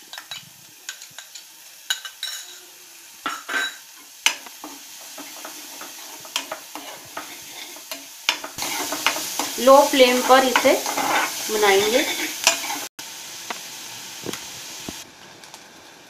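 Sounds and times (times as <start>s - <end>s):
faint frying sizzle: 0.0s - 16.0s
metal spoon scraping a pan: 3.3s - 12.9s.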